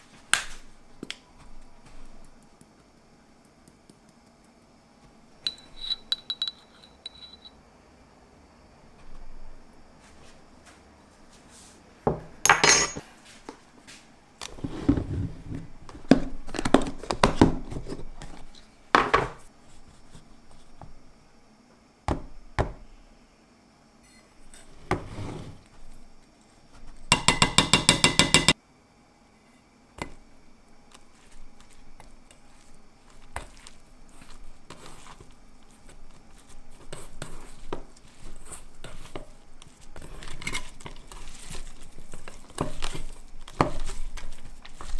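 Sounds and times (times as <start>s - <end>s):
spoons clinking on a steel bowl: 5.4s - 7.5s, 12.5s - 13.0s, 27.1s - 28.6s
meat being mixed by hand: 30.2s - 44.9s.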